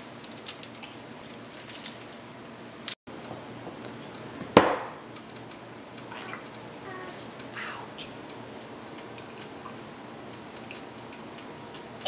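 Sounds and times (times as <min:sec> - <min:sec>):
loud sharp knock: 0:04.6 - 0:05.0.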